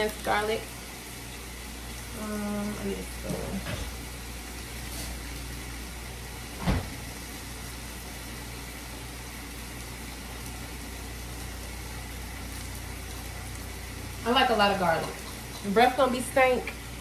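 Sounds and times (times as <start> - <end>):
chicken frying in a pan: 0.0 - 17.0
short thump: 6.6 - 7.0.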